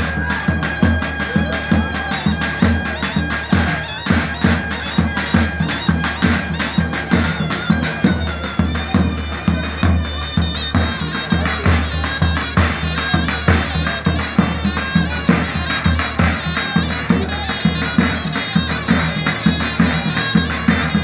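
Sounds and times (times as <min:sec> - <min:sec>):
large drum beat: 0:00.0 - 0:21.0
shrill double-reed melody: 0:00.0 - 0:21.0.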